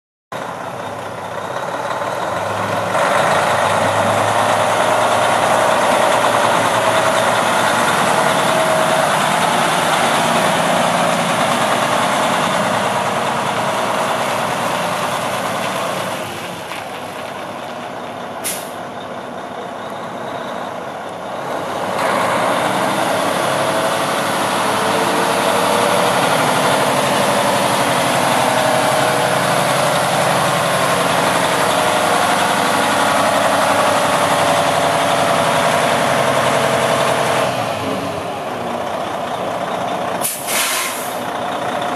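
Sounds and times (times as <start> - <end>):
truck diesel engine running: 0.4 - 41.9
air release hiss: 40.2 - 41.2.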